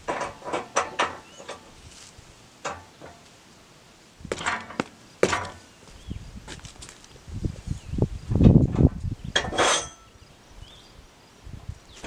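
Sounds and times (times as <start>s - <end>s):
wood and metal knocks: 4.3s - 5.6s.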